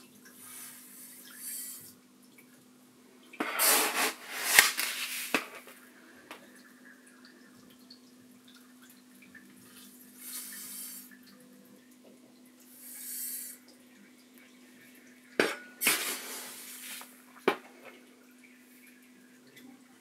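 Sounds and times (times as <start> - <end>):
sand pouring hiss: 3.4 - 5.5, 15.8 - 17.1.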